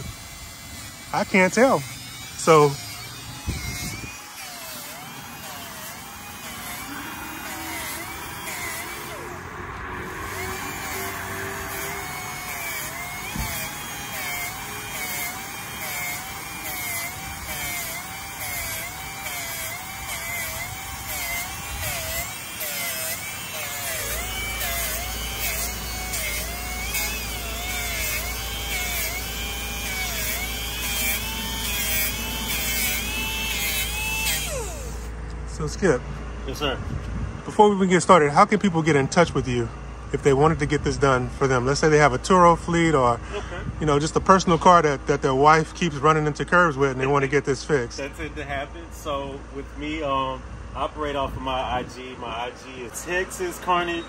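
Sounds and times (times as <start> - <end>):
pneumatic sander whining on metal: 0.0 - 35.2.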